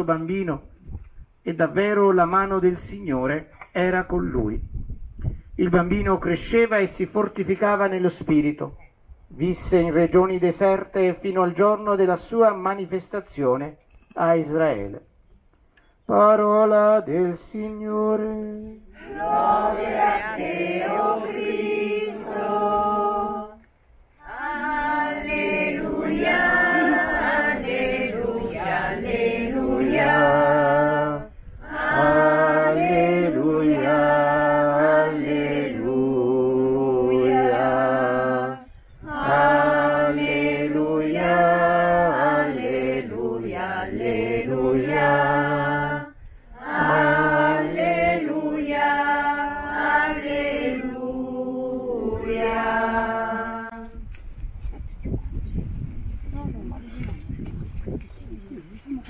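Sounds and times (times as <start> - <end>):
church choir singing: 18.9 - 23.6, 24.2 - 54.0
breaths: 46.2 - 46.6.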